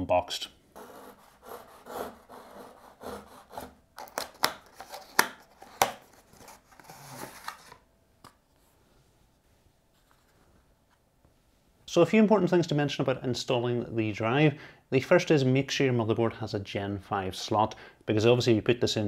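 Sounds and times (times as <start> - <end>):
knife scraping tape on cardboard: 0.8 - 3.8
cardboard clicks and snaps: 4.0 - 6.1
plastic tray rustling: 4.0 - 7.8.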